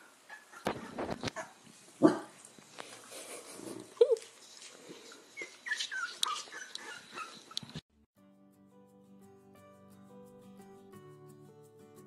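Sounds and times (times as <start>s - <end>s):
puppies squeaking and whimpering: 0.3s - 1.6s, 5.0s - 7.8s.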